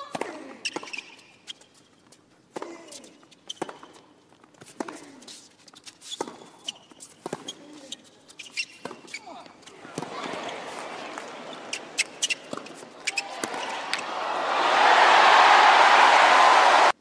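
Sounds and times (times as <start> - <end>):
tennis racket hitting ball: 11.6 - 14.1.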